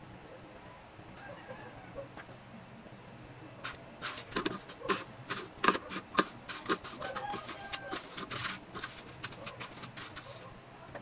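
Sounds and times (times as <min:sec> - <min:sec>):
breadcrumbs crackling and crunching: 0:03.7 - 0:10.4.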